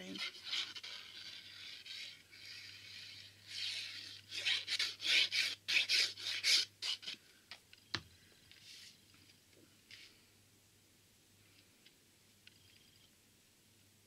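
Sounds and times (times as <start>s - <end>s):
glue bottle tip scraping cardstock: 0.1s - 7.2s.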